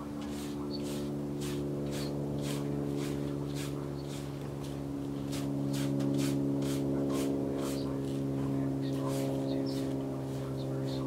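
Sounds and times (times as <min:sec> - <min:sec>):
paint brush rasping on canvas: 0:00.0 - 0:08.2, 0:08.9 - 0:10.5
low mechanical hum: 0:00.0 - 0:11.0.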